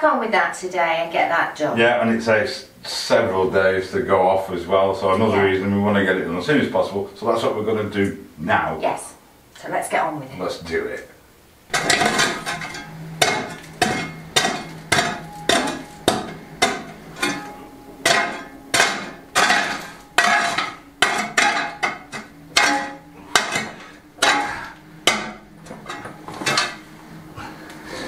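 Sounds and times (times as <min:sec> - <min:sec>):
steel bar striking stone rubble: 0:11.7 - 0:26.9.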